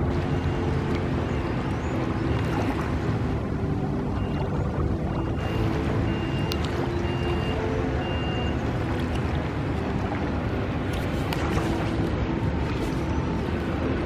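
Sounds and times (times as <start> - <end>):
low city rumble: 0.0 - 14.0
high electronic beep: 4.2 - 8.6.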